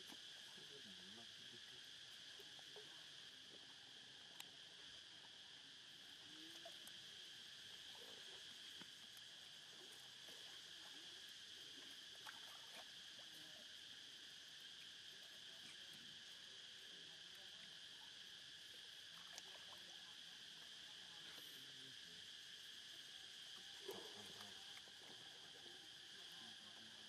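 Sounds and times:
high-pitched insect drone: 0.0s - 27.0s
faint clicks: 4.3s - 4.5s.

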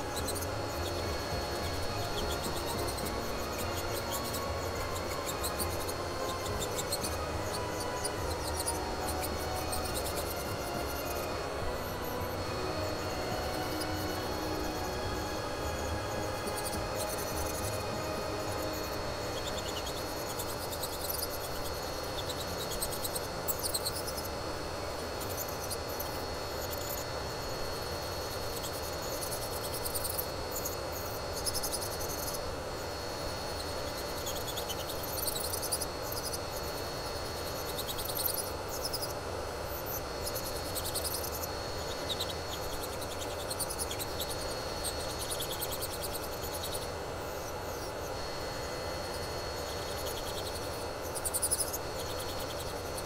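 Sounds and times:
dust collector fan hum: 0.0s - 53.0s
electric nail drill whining: 0.0s - 53.0s.

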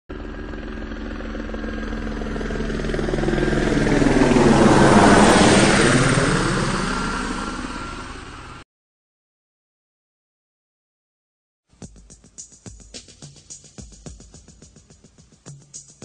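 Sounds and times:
aircraft engine drone: 0.1s - 8.6s.

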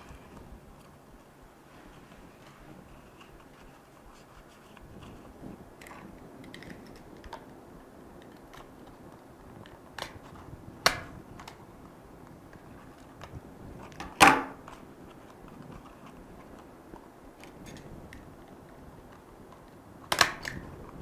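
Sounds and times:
card rustling and folding: 0.0s - 7.6s, 11.3s - 21.0s
stapler clicking shut: 20.1s - 20.6s.

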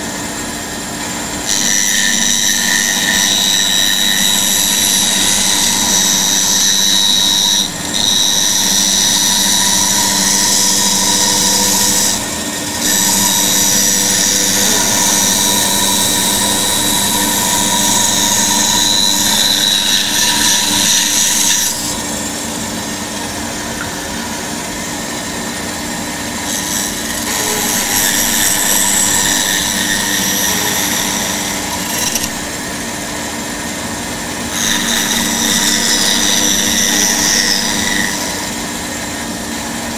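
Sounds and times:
bandsaw hum: 0.0s - 39.9s.

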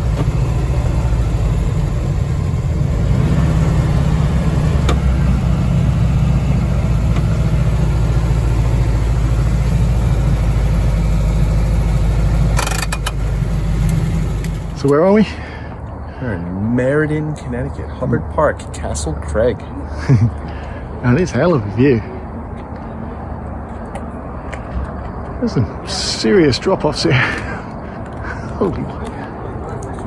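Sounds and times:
car engine running: 0.0s - 14.9s.

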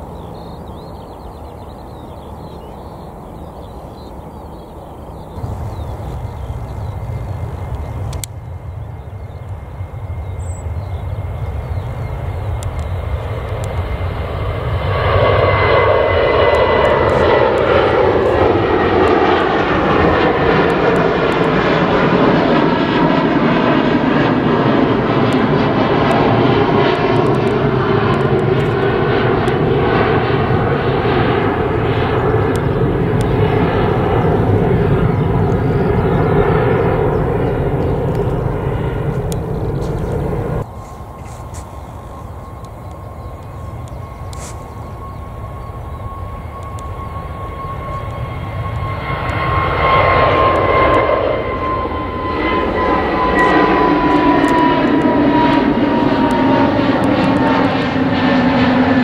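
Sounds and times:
jet engines at takeoff: 0.0s - 59.0s
jet whine sliding down: 14.7s - 59.0s.

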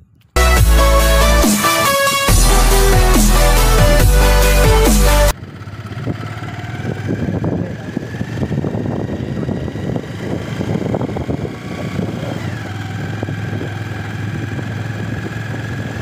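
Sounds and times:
motorcycle engine running: 2.3s - 16.0s
wind and road noise: 5.3s - 16.0s.

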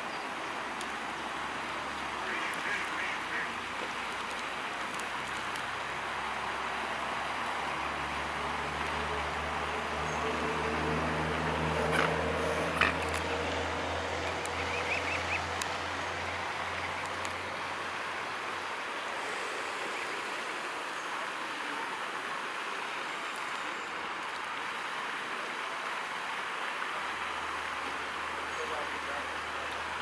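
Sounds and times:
running water: 0.0s - 30.0s
faint clicks: 16.7s - 17.4s.

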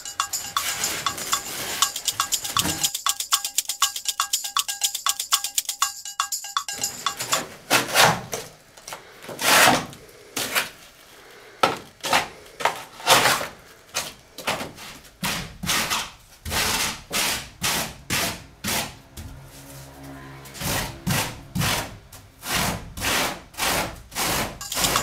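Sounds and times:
tool scraping polystyrene foam: 9.3s - 10.8s, 14.8s - 19.0s, 20.6s - 24.9s.

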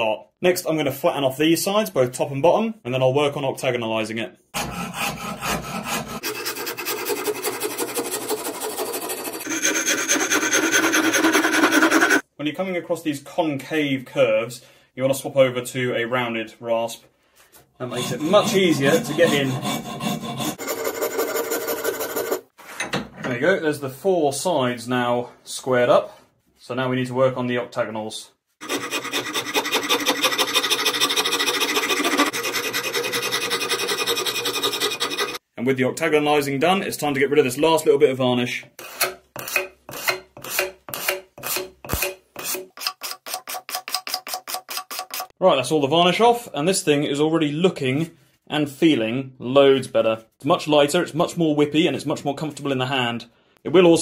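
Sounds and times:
rasp shaving wood: 4.6s - 12.2s, 17.9s - 22.5s, 28.6s - 35.4s.

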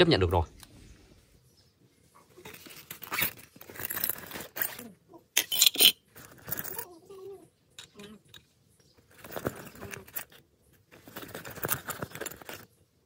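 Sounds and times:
metal hand tools clinking in pouch: 2.4s - 7.0s, 9.0s - 12.8s.

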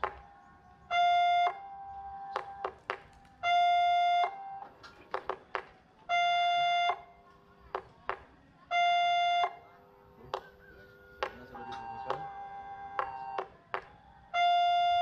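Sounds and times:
level crossing warning tone: 0.3s - 2.8s, 6.0s - 7.2s, 8.7s - 15.0s.

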